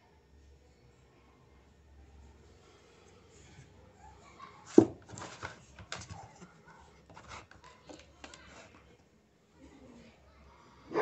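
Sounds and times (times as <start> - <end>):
puppy claws scrabbling on plastic: 4.7 - 8.8.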